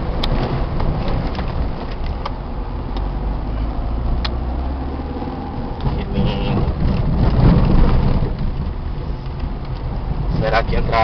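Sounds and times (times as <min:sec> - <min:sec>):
car engine rumble: 0:00.0 - 0:11.0.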